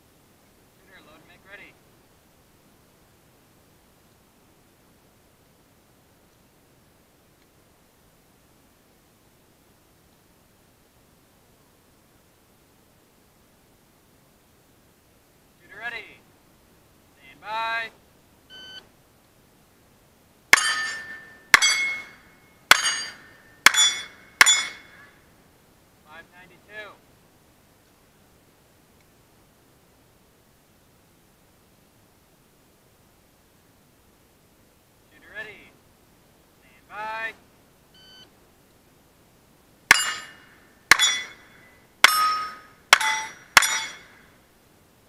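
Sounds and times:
steel target ringing: 0:20.5 - 0:25.2, 0:39.9 - 0:44.2.

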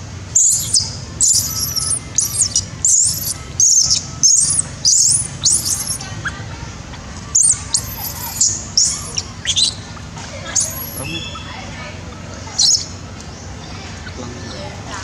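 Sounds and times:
baby monkey squealing: 0:00.4 - 0:11.8, 0:12.5 - 0:13.0.

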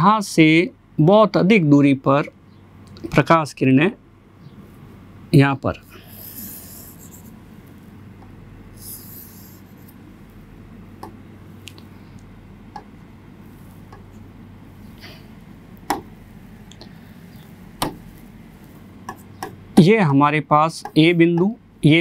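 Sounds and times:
faint steady hum: 0:00.0 - 0:22.0
stylus scratching on screen: 0:06.0 - 0:08.0, 0:08.7 - 0:10.1
stylus tapping on screen: 0:10.9 - 0:11.2, 0:12.7 - 0:13.0, 0:13.7 - 0:14.2, 0:15.8 - 0:19.9, 0:20.8 - 0:21.6.

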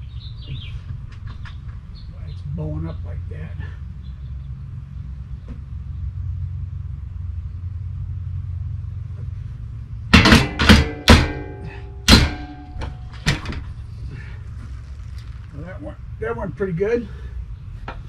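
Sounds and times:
hammer blows on metal: 0:10.1 - 0:13.6.

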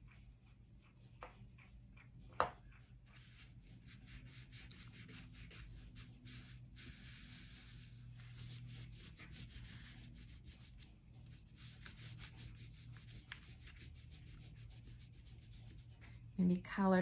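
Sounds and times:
steady low hum: 0:00.0 - 0:17.0
pastel rubbing on paper: 0:03.1 - 0:16.1.

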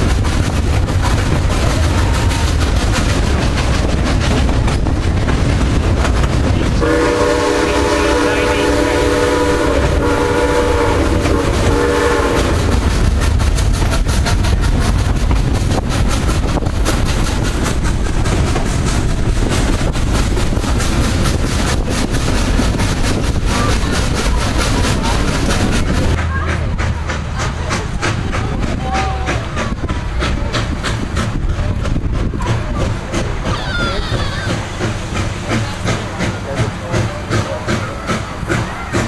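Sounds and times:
train cars clickety-clack on rails: 0:00.0 - 0:39.0
steam locomotive whistle blasts: 0:06.8 - 0:12.7.

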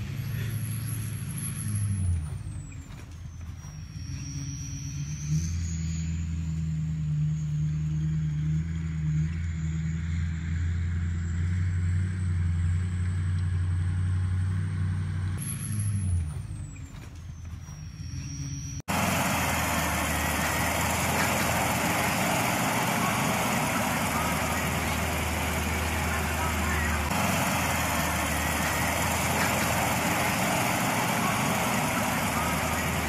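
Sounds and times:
engine drone under load: 0:00.0 - 0:33.0.

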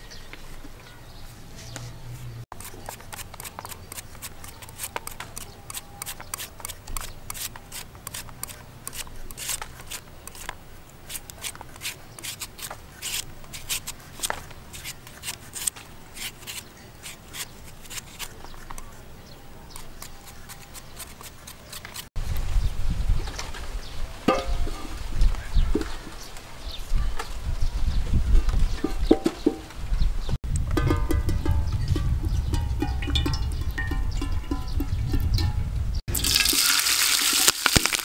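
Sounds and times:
metal peeler scraping fruit skin: 0:02.5 - 0:19.1, 0:19.7 - 0:22.1.

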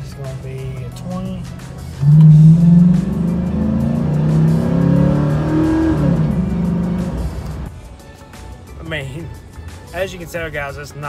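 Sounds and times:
engine accelerating under full throttle: 0:02.0 - 0:07.7.

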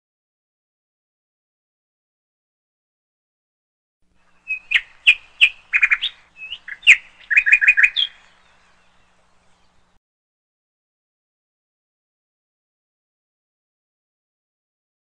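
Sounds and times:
bird chirping: 0:04.2 - 0:10.0.

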